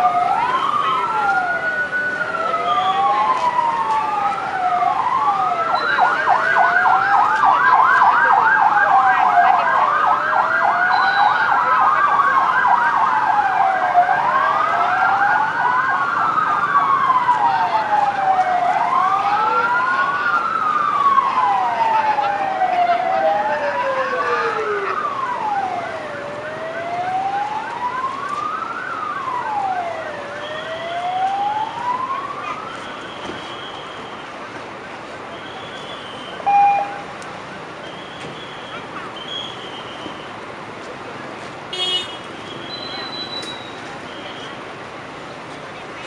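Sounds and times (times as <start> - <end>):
siren wailing: 0.0 - 33.2, 36.4 - 37.1
siren yelping: 0.0 - 33.2, 36.4 - 37.0.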